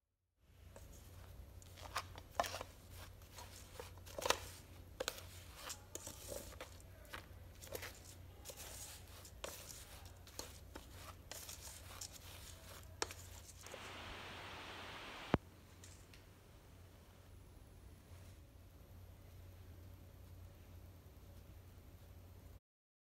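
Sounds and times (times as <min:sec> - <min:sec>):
spatula scraping in mesh sieve: 0:00.8 - 0:13.9.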